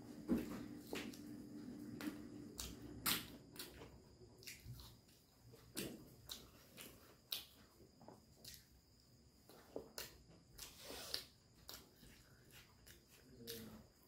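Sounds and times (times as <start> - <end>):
chewing mouth clicks and smacks: 2.5 - 8.8.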